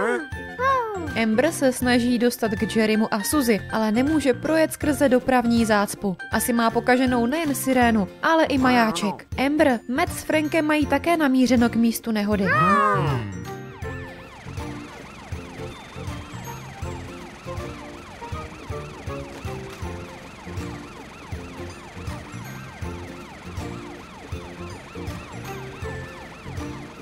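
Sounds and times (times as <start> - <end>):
background music with bass line: 12.4 - 17.8
cartoon sirens wailing: 12.4 - 27.0.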